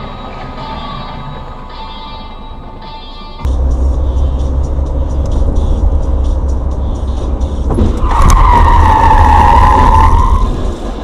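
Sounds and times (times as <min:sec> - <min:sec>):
road and engine rumble: 0:00.0 - 0:11.0
sharp thump: 0:07.6 - 0:08.1
tyres squealing in a skid: 0:07.6 - 0:11.0.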